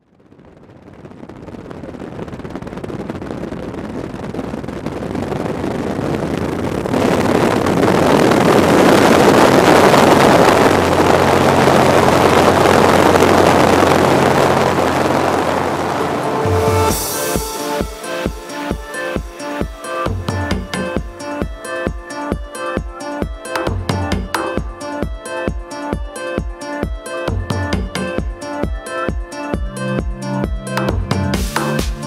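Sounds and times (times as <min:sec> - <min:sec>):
wind rushing over microphone: 0:00.0 - 0:22.3
airplane engine at full power: 0:03.5 - 0:21.6.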